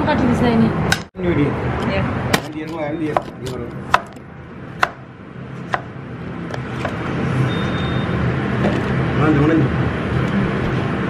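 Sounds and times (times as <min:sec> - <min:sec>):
knife chopping on plastic board: 0:02.3 - 0:04.2, 0:04.8 - 0:05.0.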